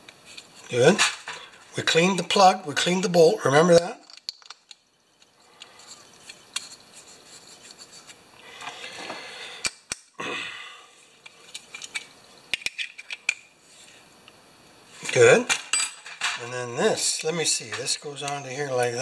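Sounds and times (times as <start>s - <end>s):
small metal clicks: 3.7s - 6.8s, 11.2s - 13.5s
light metal scraping: 5.4s - 9.2s.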